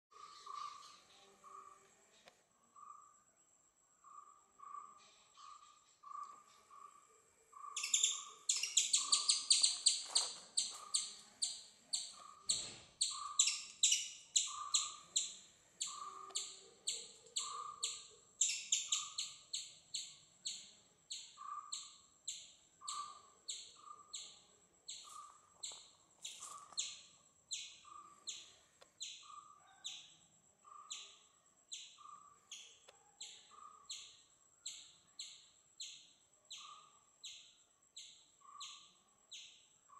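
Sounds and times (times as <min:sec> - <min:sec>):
animal chirping: 0:07.6 - 0:37.4.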